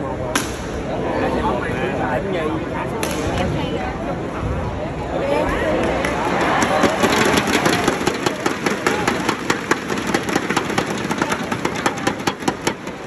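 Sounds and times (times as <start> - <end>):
crowd cheering: 5.4 - 13.0
thundersticks banging together: 6.6 - 13.0.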